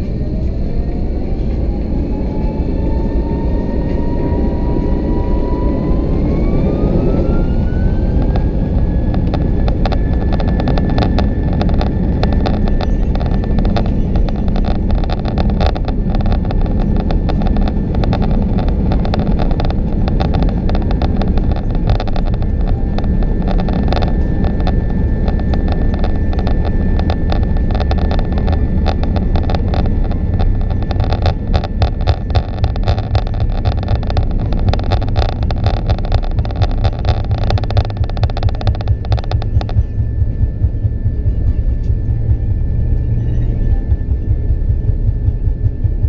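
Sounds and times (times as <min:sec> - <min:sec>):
airliner engine and rolling rumble: 0:00.0 - 0:46.0
small clicks and rattles: 0:07.9 - 0:42.3.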